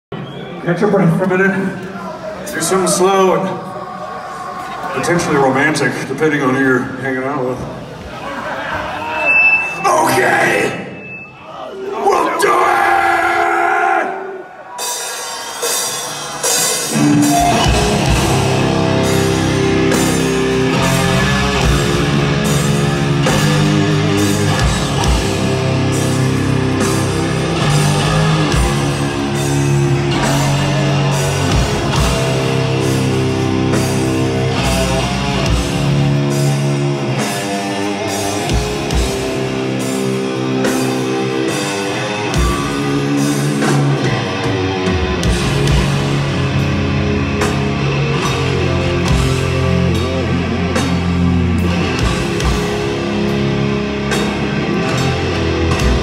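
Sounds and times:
distorted electric guitars: 0:14.2 - 0:56.0
drum kit: 0:14.8 - 0:56.0
bass guitar: 0:16.4 - 0:56.0.

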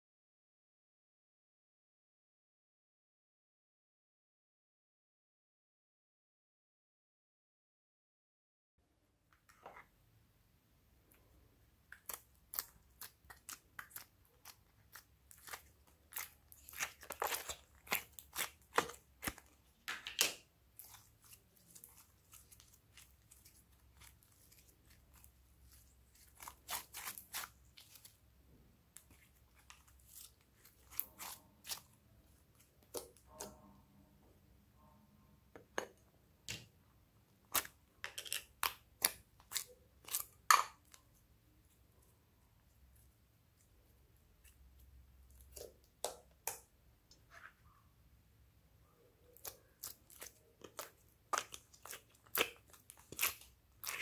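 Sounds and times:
slime squishing with sticky clicks: 0:11.8 - 0:28.2, 0:49.3 - 0:54.0.

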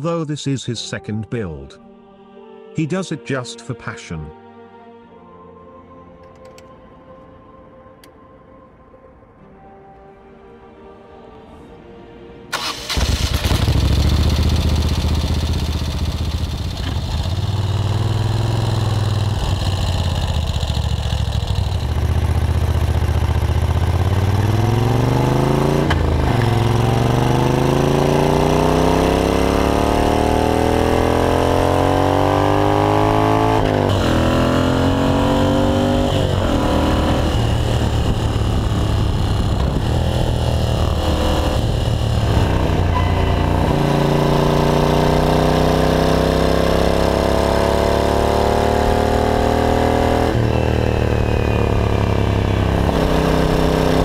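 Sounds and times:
motorcycle accelerating through gears: 0:12.6 - 0:54.0
motorcycle engine rumbling: 0:12.6 - 0:54.0.

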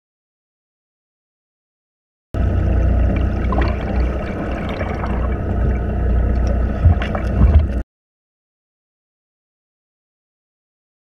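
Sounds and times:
muffled underwater water noise: 0:02.4 - 0:07.8
steady low rumble: 0:02.4 - 0:07.8.

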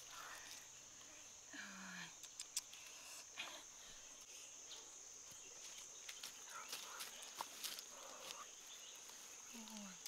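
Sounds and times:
high-pitched insect chorus: 0:00.0 - 0:10.0.

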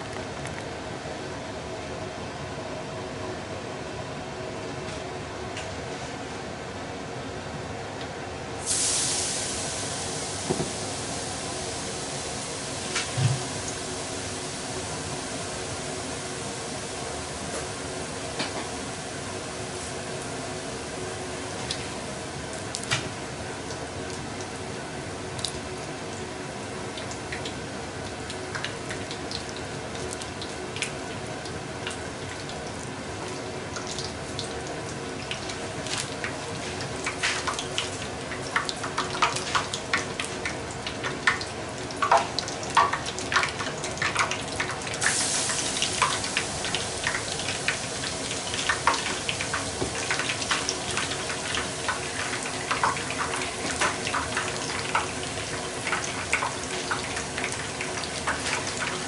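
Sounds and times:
shrimp sizzling in oil: 0:08.6 - 0:26.1, 0:26.7 - 0:59.0.

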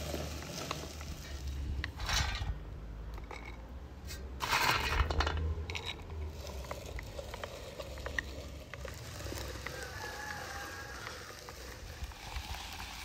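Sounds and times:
meat grinder crushing walnuts: 0:00.0 - 0:01.3, 0:06.3 - 0:13.0.

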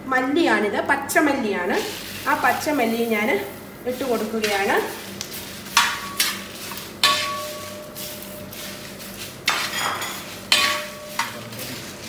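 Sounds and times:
spices scraping and rattling: 0:03.8 - 0:12.0
metal spatula knocking on pan: 0:07.0 - 0:07.8, 0:09.5 - 0:11.3.

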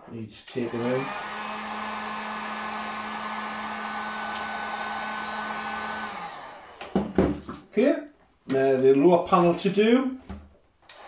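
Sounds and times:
motor winding down: 0:00.5 - 0:06.9
heat gun fan humming: 0:00.5 - 0:07.0.

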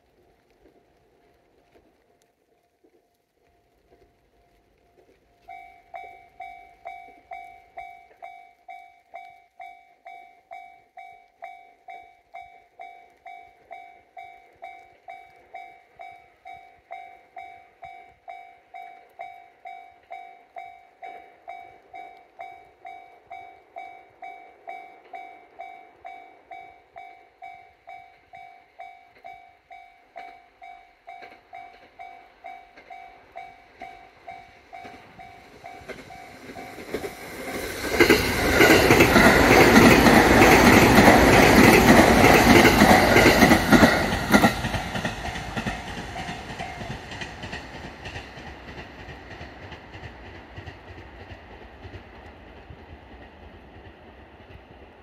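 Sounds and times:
level crossing warning bell: 0:05.3 - 0:47.6
train passing loudly: 0:11.8 - 0:55.0
wheels clattering over rail joints: 0:30.2 - 0:54.7.

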